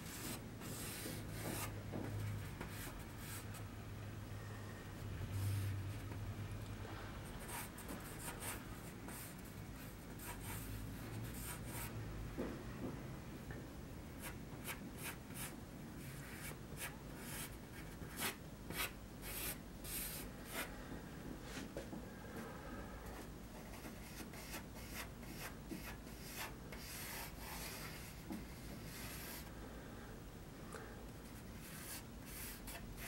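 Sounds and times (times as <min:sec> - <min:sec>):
pencil sketching on paper: 0:23.7 - 0:29.4, 0:31.6 - 0:33.0.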